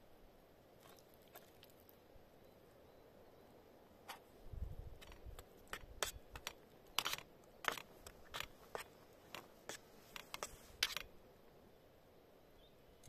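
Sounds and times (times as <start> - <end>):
metal utensil scraping pan: 5.0 - 11.1.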